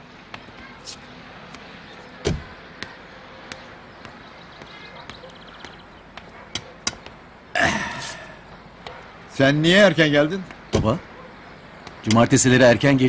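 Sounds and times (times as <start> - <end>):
light footsteps: 0.2 - 7.4
car door slamming: 2.2 - 2.5.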